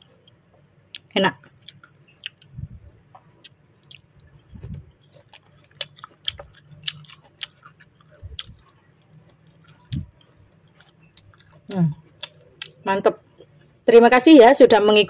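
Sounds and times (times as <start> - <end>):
person chewing crunchy fruit: 0.0 - 13.8
soft low thumps: 2.5 - 3.2, 4.3 - 5.0.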